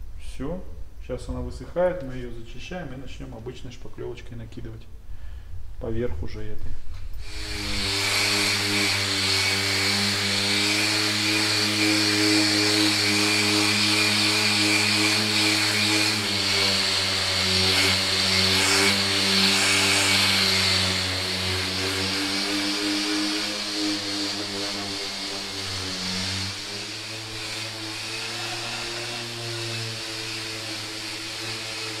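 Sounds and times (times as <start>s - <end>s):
orbital sander running: 7.2s - 32.0s
sanding pad hiss: 7.2s - 32.0s.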